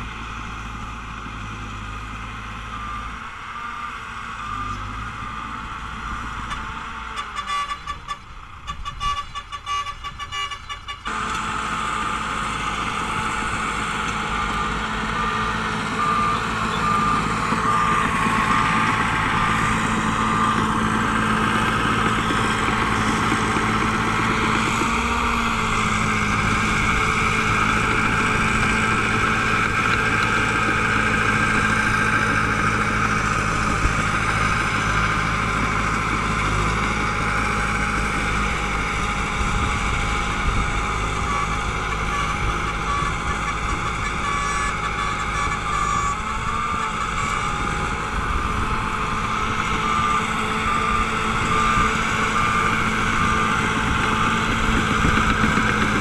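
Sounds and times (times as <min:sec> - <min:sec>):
bulldozer diesel engine running: 0:00.0 - 0:56.0
reversing alarm beeping: 0:14.4 - 0:21.2.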